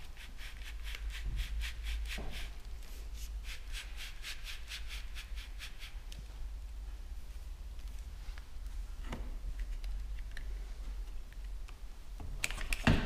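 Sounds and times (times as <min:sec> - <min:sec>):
low steady hum: 0:04.6 - 0:12.8.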